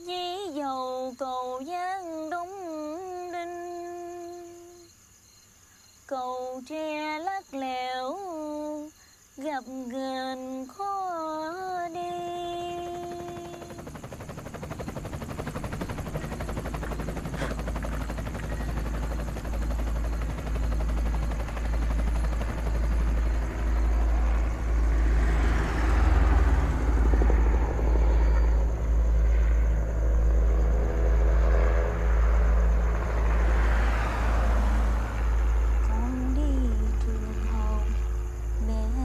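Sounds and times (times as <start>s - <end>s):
helicopter rotor drone: 0.0s - 4.9s, 9.7s - 39.0s.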